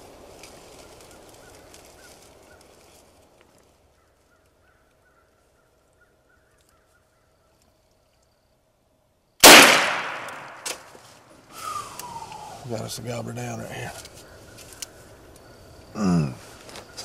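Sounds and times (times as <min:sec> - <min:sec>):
shotgun blast: 0:09.4 - 0:10.9
faint chirps: 0:11.5 - 0:17.0.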